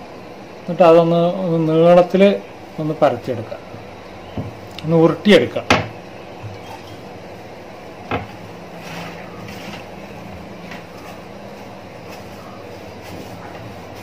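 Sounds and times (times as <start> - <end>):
steady low hum: 0.0 - 14.0
hands rolling dough: 10.6 - 14.0.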